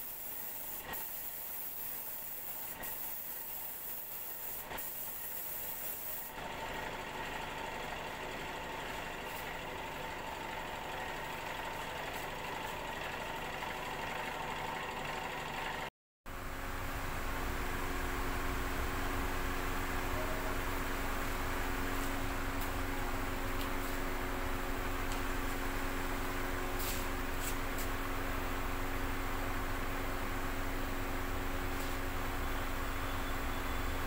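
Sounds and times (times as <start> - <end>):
paint spray gun hissing: 0.0 - 6.4
air compressor humming: 0.0 - 7.0.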